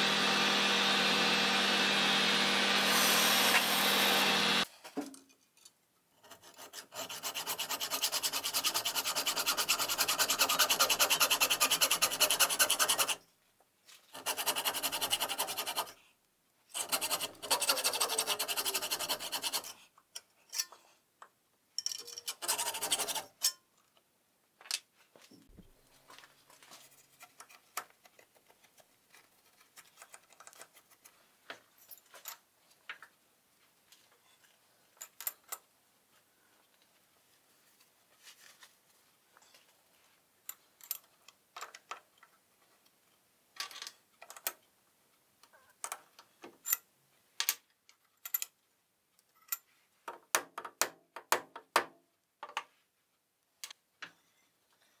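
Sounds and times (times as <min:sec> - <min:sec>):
metal lathe running: 0:00.0 - 0:04.6
hacksaw rasping through metal: 0:06.2 - 0:13.2, 0:16.8 - 0:19.8, 0:22.3 - 0:23.5.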